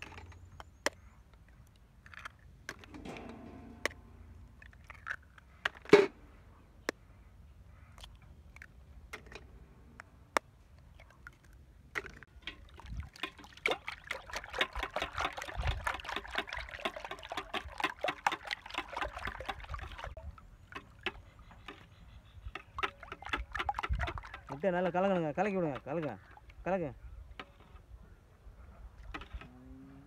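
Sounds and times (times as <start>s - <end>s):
whisk beating eggs in steel bowl: 13.3s - 20.2s.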